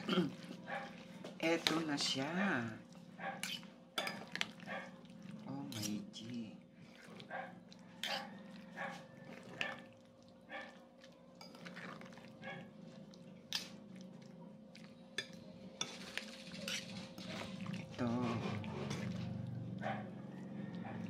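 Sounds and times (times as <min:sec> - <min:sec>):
spoon scraping a bowl: 0:03.4 - 0:04.3, 0:05.7 - 0:06.0, 0:15.2 - 0:19.5.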